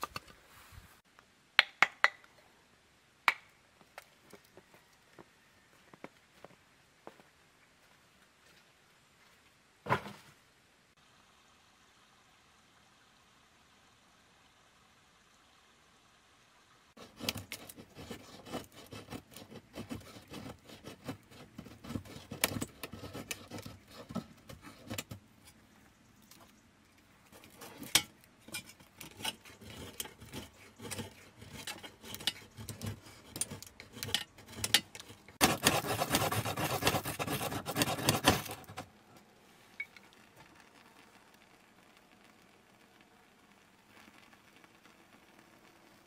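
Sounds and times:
knife scraping wood: 17.0s - 25.6s, 27.3s - 38.9s.

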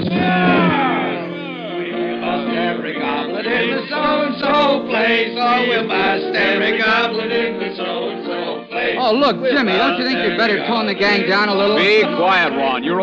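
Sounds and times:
held accompanying chords: 0.0s - 13.0s
men singing together: 0.0s - 13.0s.

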